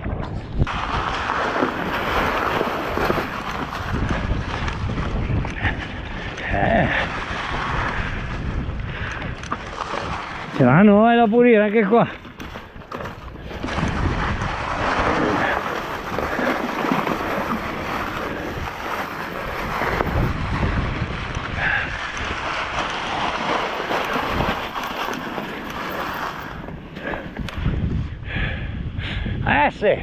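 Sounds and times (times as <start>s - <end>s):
wind on microphone: 0.0s - 11.4s, 12.0s - 30.0s
tyres rustling over dry leaves: 0.7s - 5.4s, 9.6s - 21.3s, 21.9s - 27.0s.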